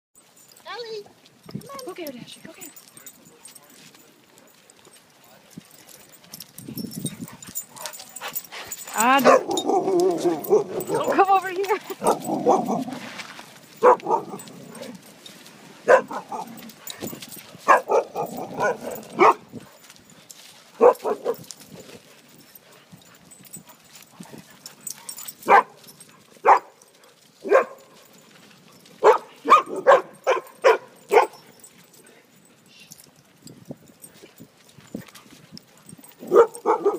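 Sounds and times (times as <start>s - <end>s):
dogs barking in play: 7.2s - 15.2s, 15.8s - 19.9s, 20.7s - 22.0s, 23.2s - 31.7s, 36.0s - 36.9s.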